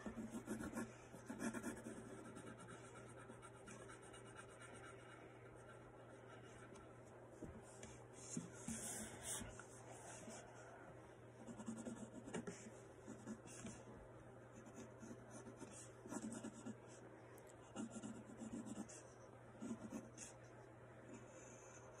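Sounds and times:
pencil scratching on paper: 0:00.0 - 0:06.8, 0:08.2 - 0:10.4, 0:11.4 - 0:13.8, 0:14.6 - 0:16.8, 0:17.8 - 0:19.0
steady low hum: 0:00.0 - 0:22.0.

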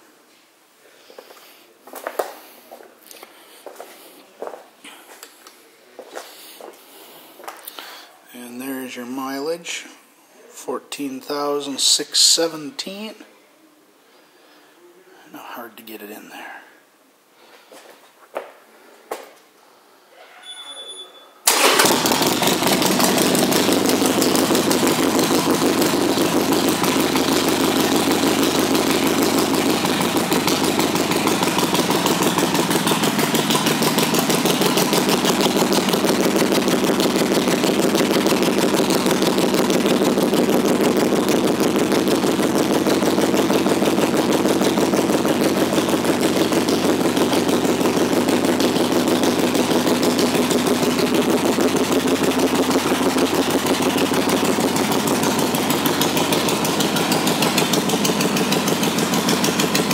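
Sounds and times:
motorcycle engine starting and idling: 0:21.4 - 0:59.9.

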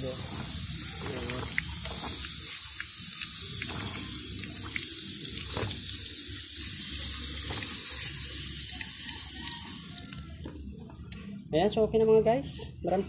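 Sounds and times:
hose water spraying: 0:00.0 - 0:10.4.

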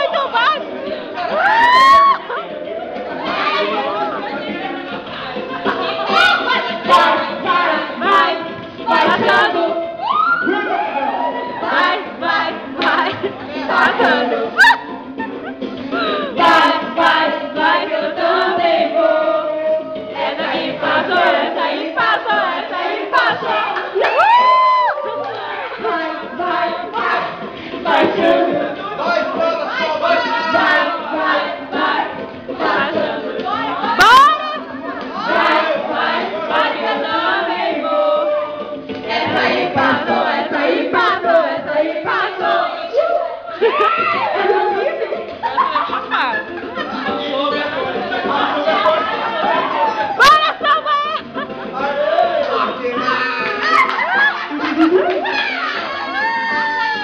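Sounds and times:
group singing and shouting: 0:00.0 - 0:57.0.

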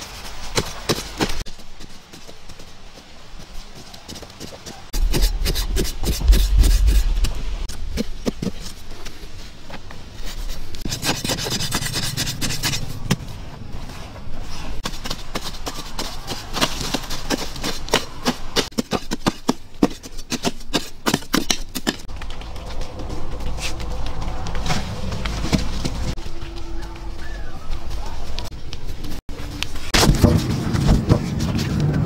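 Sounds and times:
metal blade scraping dry earth: 0:04.7 - 0:09.3, 0:10.1 - 0:15.4.

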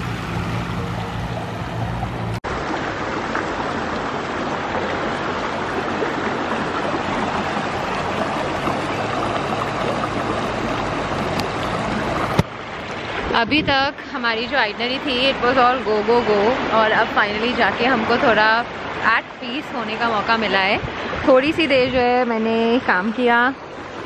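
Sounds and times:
river rushing over stones: 0:00.0 - 0:21.8.

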